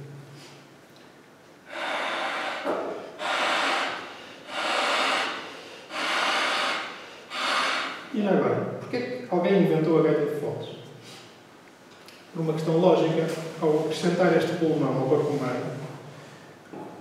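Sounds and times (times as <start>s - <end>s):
man blowing into blowpipe: 1.7s - 8.1s.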